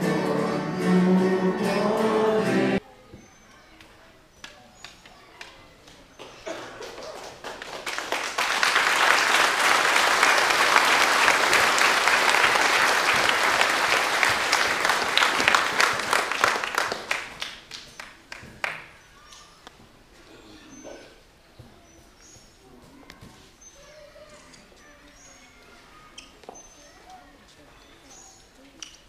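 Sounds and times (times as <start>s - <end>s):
congregation applauding: 6.2s - 18.9s.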